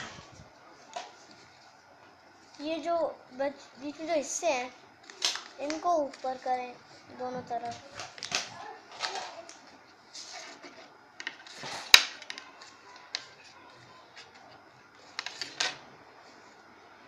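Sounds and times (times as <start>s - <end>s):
paper rustling and crinkling: 7.5s - 16.6s.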